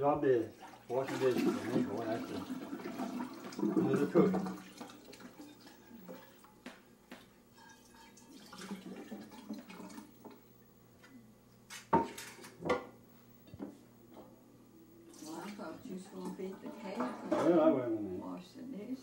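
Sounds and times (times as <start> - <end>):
dishes clattering: 11.9 - 13.7, 16.8 - 17.6.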